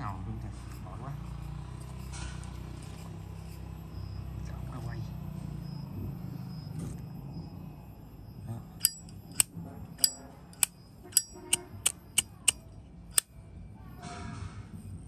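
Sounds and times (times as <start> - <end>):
lighter lid clinking: 8.8 - 9.4, 10.0 - 12.6.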